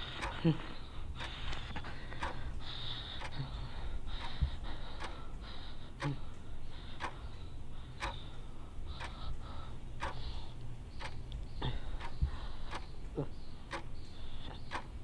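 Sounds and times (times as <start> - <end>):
clock ticking: 0.0 - 15.0
man breathing heavily: 0.0 - 15.0
steady low hum: 0.0 - 15.0.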